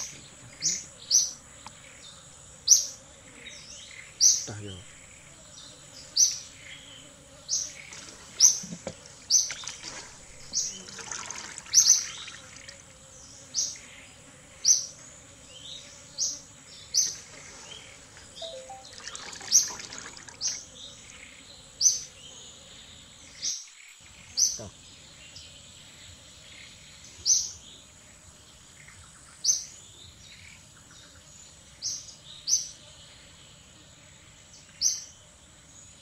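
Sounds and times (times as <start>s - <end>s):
bird chirping: 15.6s - 19.7s.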